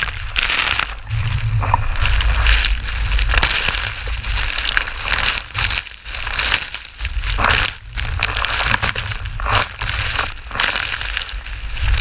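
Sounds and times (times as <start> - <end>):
wind buffeting microphone: 0.0 - 6.2.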